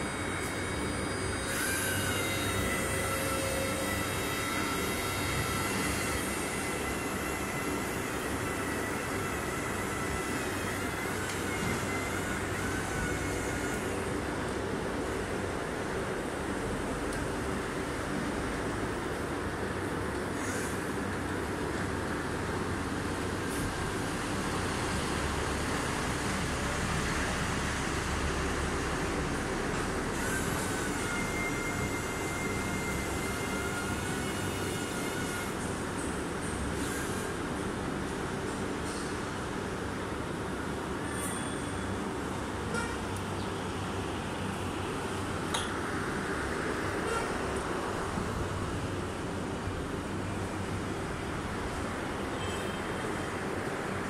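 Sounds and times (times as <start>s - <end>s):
hydraulic lift pump motor whine: 0.0s - 38.6s.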